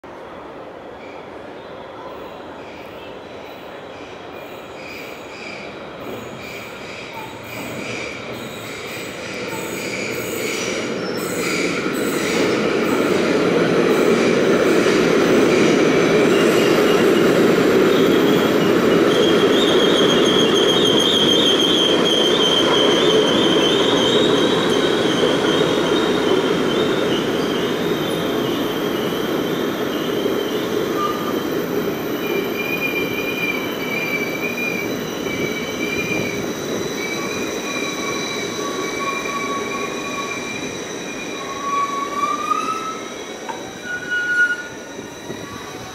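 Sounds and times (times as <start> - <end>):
train brakes squealing: 0.8 - 45.9.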